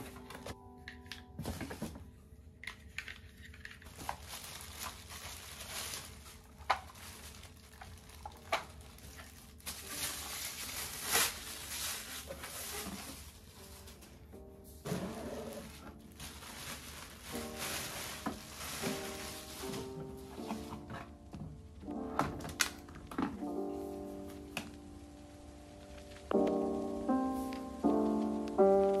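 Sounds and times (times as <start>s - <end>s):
plastic wrapping crinkling: 0.0s - 29.0s
cardboard rustling: 3.2s - 24.8s.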